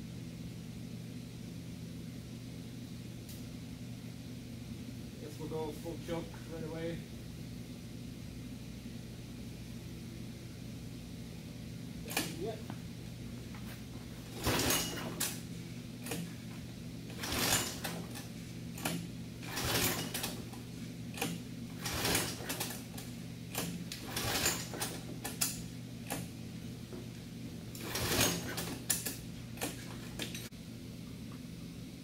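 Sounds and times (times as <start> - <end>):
engine pull-start rope strokes: 14.3 - 16.4, 17.1 - 26.4, 27.7 - 30.5
engine turning over: 17.1 - 26.3, 27.7 - 30.5.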